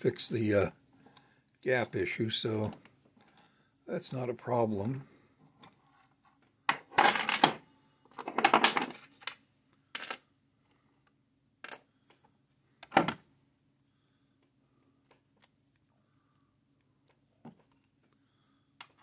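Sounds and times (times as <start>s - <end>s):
steel parts clinking and rattling: 6.9s - 9.0s.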